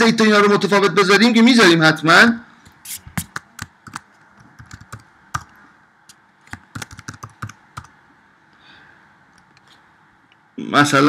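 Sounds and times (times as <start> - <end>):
computer keyboard typing: 3.2 - 5.5, 6.4 - 8.0.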